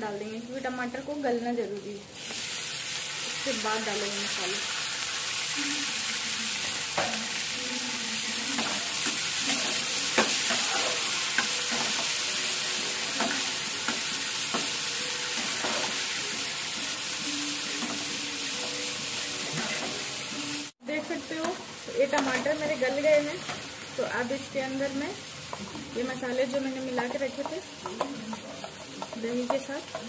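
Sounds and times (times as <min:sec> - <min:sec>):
vegetables sizzling in oil: 0:00.0 - 0:30.0
spatula scraping a pan: 0:08.6 - 0:12.3.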